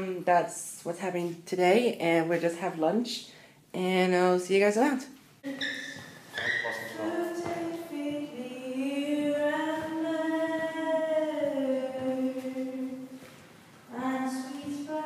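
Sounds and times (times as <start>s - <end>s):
woman singing unaccompanied: 6.9s - 13.2s, 13.9s - 15.0s.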